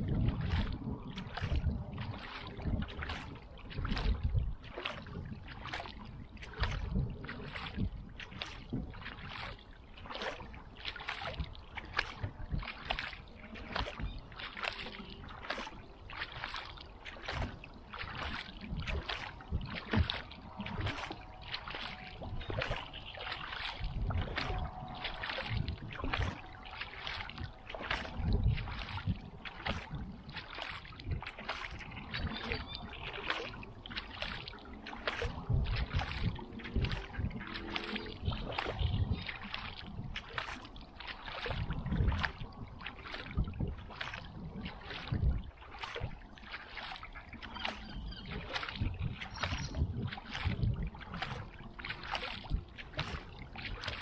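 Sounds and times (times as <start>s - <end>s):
kayak paddle splashing in water: 0.0s - 54.0s.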